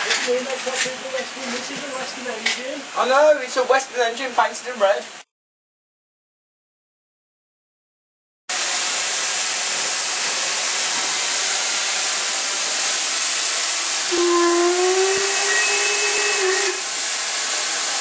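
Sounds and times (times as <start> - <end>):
steam hissing from locomotive: 0.0 - 3.9, 8.5 - 18.0.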